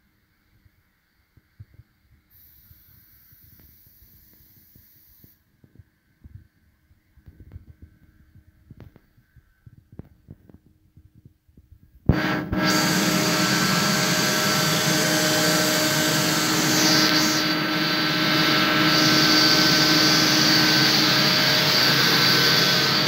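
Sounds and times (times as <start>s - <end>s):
compressed air rushing with hum: 12.1s - 23.0s.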